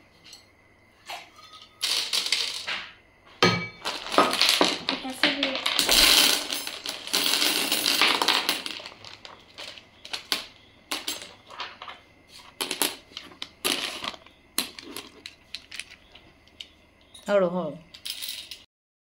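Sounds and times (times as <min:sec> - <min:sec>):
pebbles clattering: 0:01.7 - 0:03.0, 0:03.8 - 0:16.8, 0:17.9 - 0:18.7.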